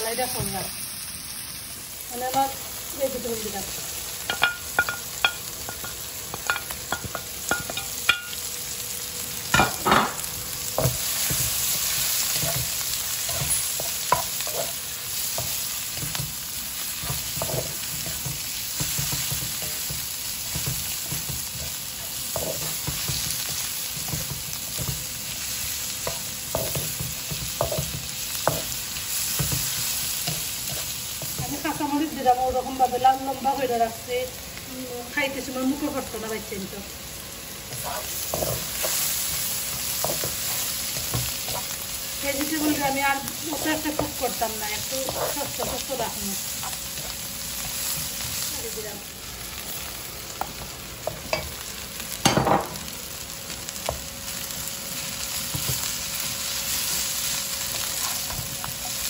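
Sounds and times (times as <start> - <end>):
vegetables sizzling in oil: 0.0 - 59.0
wooden spatula scraping wok: 10.8 - 25.0, 37.7 - 49.0, 57.7 - 59.0.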